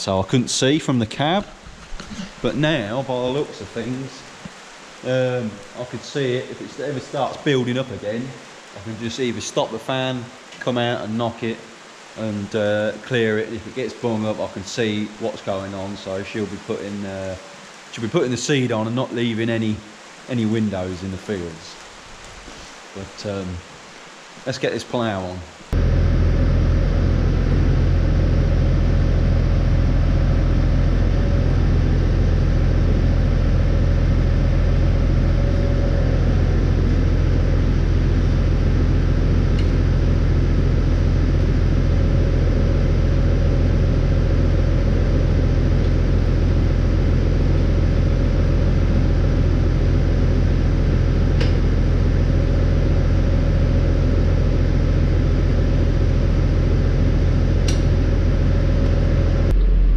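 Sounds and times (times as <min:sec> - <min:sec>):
tractor diesel engine idling: 0:25.8 - 0:59.5.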